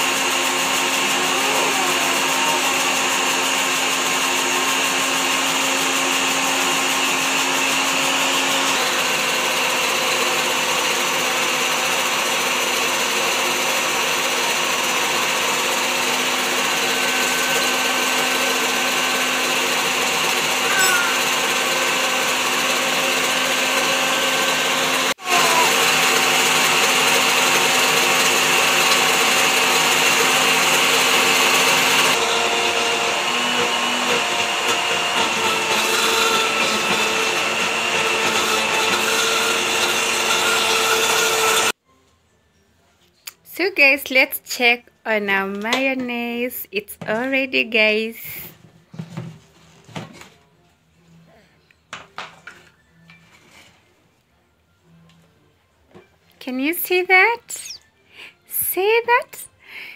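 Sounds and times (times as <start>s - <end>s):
blender motor running: 0.0s - 41.8s.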